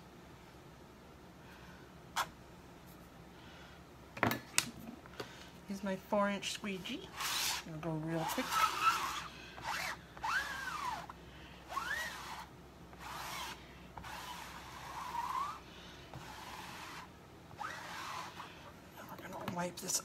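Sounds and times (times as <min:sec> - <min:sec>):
squeegee squeaking: 0:07.1 - 0:11.1, 0:11.7 - 0:18.5.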